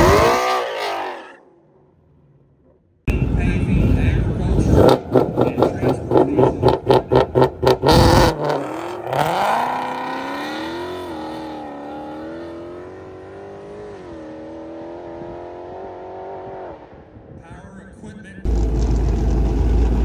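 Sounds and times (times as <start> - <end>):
drag car engine revving: 0.0 - 1.1, 3.2 - 16.6.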